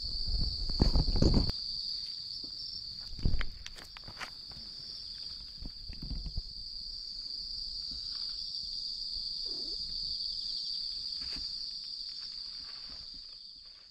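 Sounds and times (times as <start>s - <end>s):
crickets trilling: 0.0s - 13.9s.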